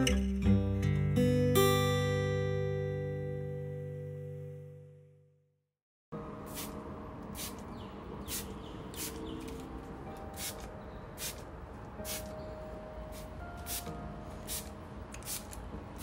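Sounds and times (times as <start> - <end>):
spray bottle hissing: 6.5 - 6.8, 7.4 - 7.6, 8.2 - 9.3, 10.4 - 11.4, 12.0 - 12.3, 13.1 - 15.6.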